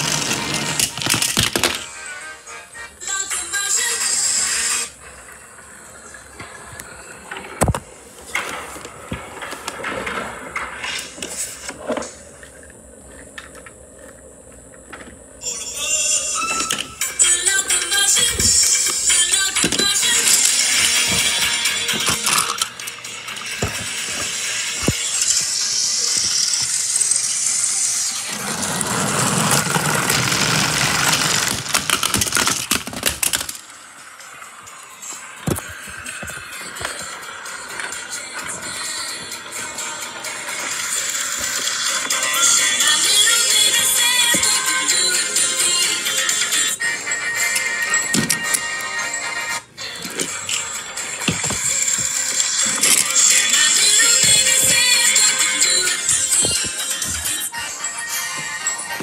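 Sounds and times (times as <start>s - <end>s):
toy train motor whirring: 17.4s - 34.2s.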